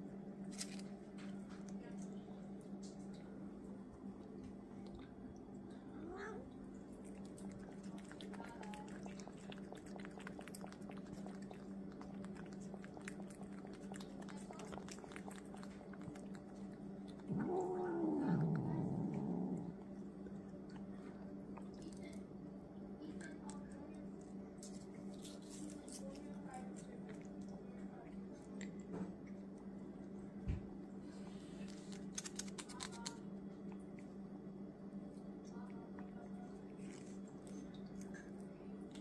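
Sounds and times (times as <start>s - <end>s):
steady low hum: 0.0s - 39.0s
cat licking and chewing: 0.1s - 39.0s.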